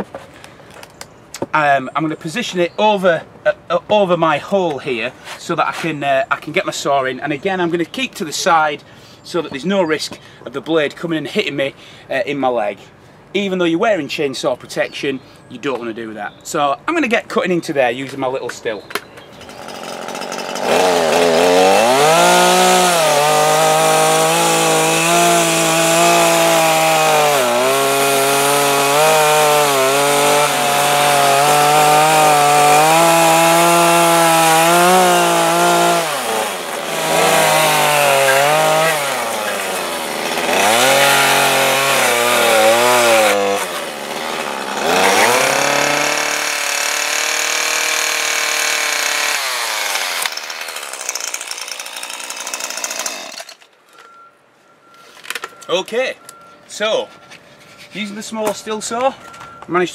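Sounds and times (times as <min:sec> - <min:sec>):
chainsaw cutting wood: 0:19.2 - 0:53.7.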